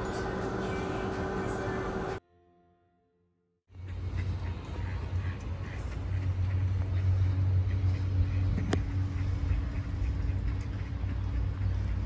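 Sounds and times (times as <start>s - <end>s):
low rumble of cars: 0.0s - 2.2s, 3.7s - 12.0s
ducks quacking: 3.7s - 12.0s.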